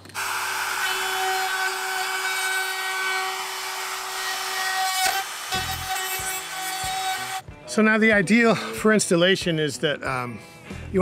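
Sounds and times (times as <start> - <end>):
router whining while cutting plastic: 0.0 - 7.4.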